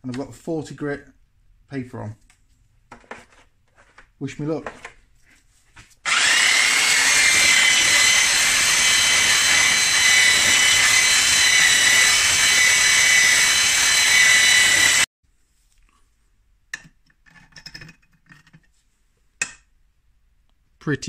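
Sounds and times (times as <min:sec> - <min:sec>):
belt sander grinding metal: 0:06.0 - 0:15.1.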